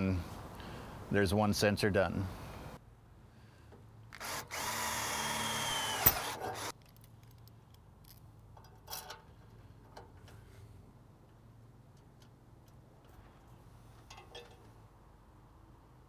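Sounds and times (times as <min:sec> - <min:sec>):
cordless drill whining: 0:04.1 - 0:06.7
drill click: 0:04.1 - 0:06.7.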